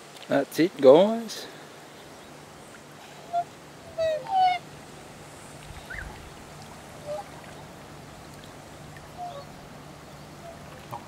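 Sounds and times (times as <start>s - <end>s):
swans honking: 2.7s - 11.0s.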